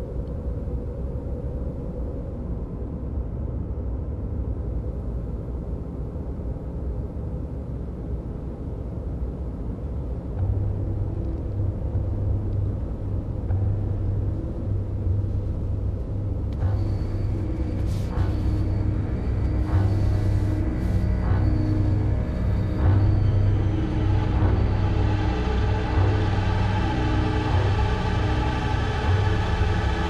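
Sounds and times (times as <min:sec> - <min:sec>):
car engine rumble: 0:10.4 - 0:30.0.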